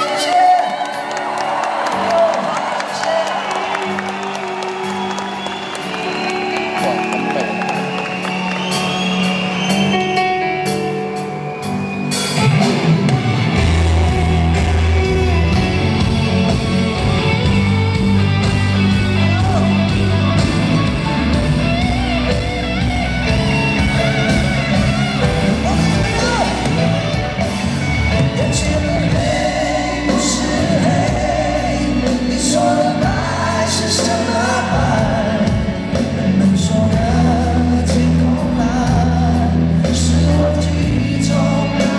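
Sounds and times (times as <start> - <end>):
rock band playing ballad: 0.0 - 41.9
bass and drums: 11.6 - 41.9
person singing: 28.1 - 41.9.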